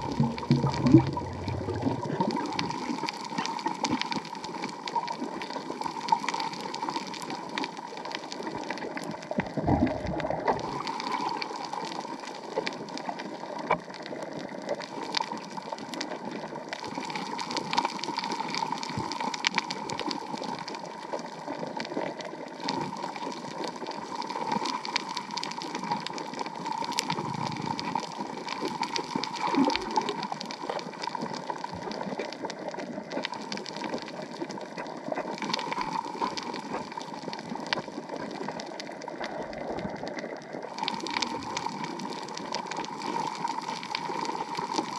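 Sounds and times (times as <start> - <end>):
watery hiss: 0.0 - 3.6
sharp crackling clicks: 0.0 - 44.9.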